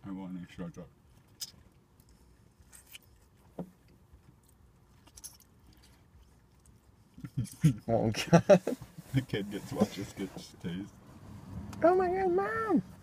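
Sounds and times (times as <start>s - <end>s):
rustles: 8.4s - 11.9s.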